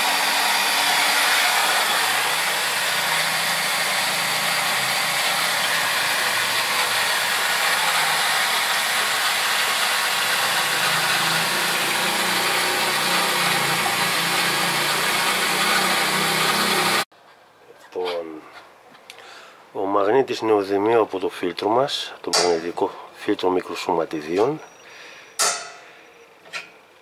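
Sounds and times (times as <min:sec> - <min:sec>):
small electric machine running: 0:00.0 - 0:17.1.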